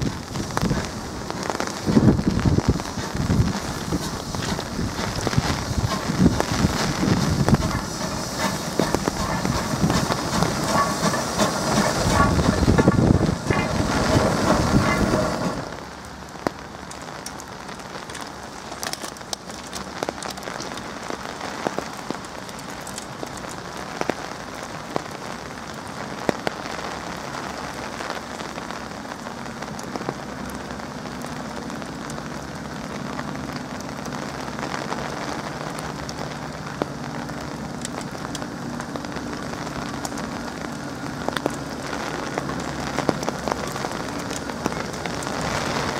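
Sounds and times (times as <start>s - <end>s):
steam locomotive passing: 0.0s - 16.2s
low locomotive rumble: 0.0s - 45.9s
rain pattering on microphone: 0.0s - 45.9s
sharp raindrop hits: 0.0s - 45.9s.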